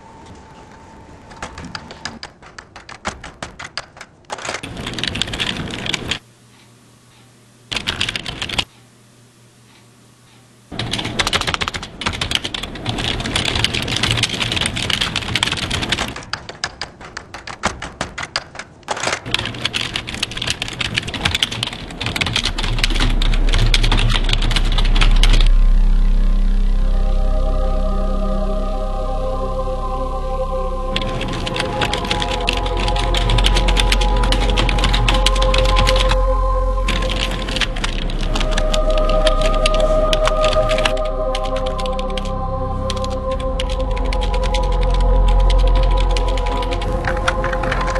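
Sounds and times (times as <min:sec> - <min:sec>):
low drone: 0:00.0 - 0:02.3, 0:19.7 - 0:47.9
fast typing on keyboards: 0:01.3 - 0:06.2, 0:07.7 - 0:08.7, 0:10.8 - 0:25.5, 0:31.0 - 0:36.2, 0:36.9 - 0:42.3, 0:42.9 - 0:47.9.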